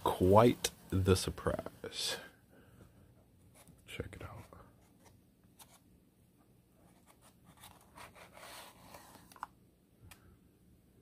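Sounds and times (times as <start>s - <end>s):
paper and cardboard rustling: 6.9s - 9.5s.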